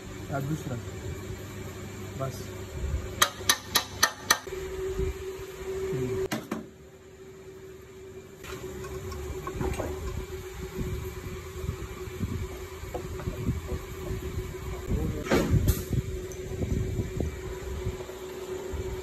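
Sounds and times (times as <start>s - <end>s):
steady hum: 0.0s - 19.0s
tool tapping metal gears: 3.2s - 4.5s.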